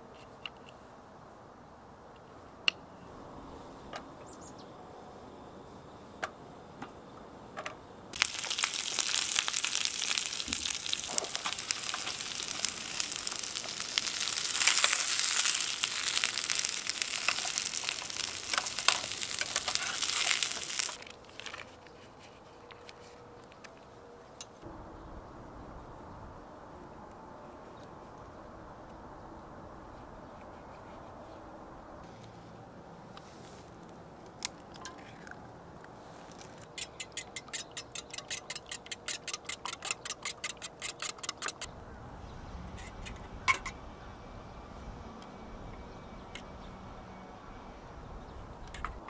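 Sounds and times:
vegetables sizzling in oil: 8.2s - 21.0s.

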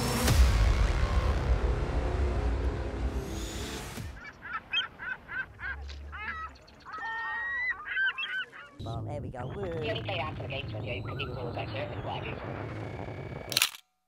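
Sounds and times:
gulls calling: 3.5s - 13.4s.

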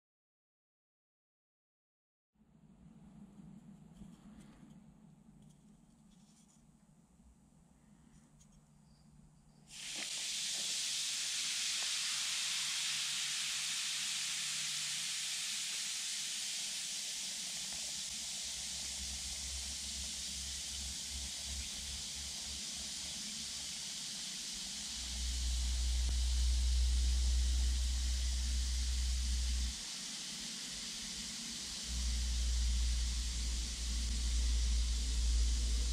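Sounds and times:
bath bomb fizzing in water: 9.7s - 26.1s
low rumble: 25.0s - 29.7s, 31.9s - 35.9s.

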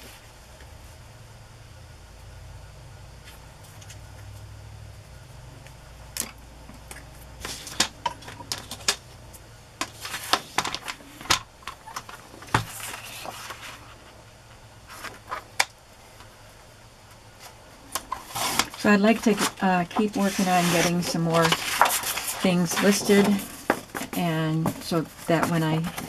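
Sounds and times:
paper rustling: 12.4s - 14.0s, 18.2s - 26.0s.

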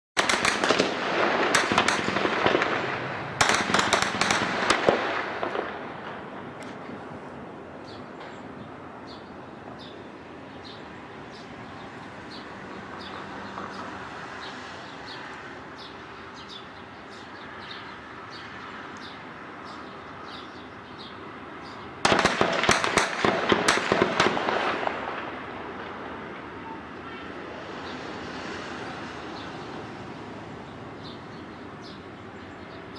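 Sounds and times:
rapid gunfire burst: 0.2s - 5.6s, 22.0s - 24.9s
faint gunshots: 0.2s - 6.8s, 22.0s - 26.2s.

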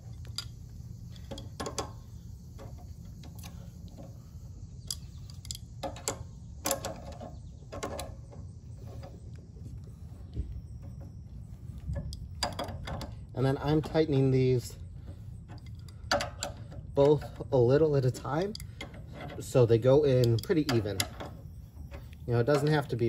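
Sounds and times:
low steady hum: 0.0s - 23.0s
wrench clicking on bolts: 4.8s - 7.2s, 15.5s - 21.4s.

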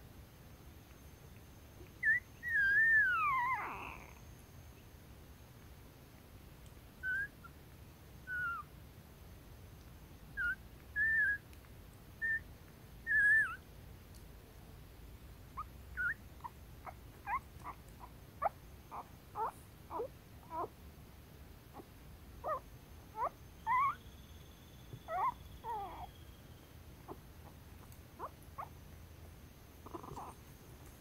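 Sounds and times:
puppies squeaking and whimpering: 2.0s - 4.2s, 7.0s - 7.3s, 8.3s - 8.6s, 10.4s - 11.4s, 13.1s - 13.6s, 15.6s - 20.7s, 21.8s - 22.6s, 23.2s - 24.0s, 25.0s - 26.1s, 28.2s - 28.7s, 29.8s - 30.4s.

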